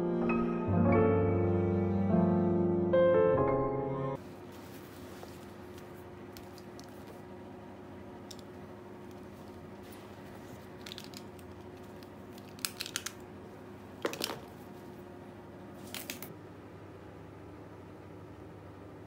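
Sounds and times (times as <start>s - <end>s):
faint steady hum: 4.1s - 19.0s.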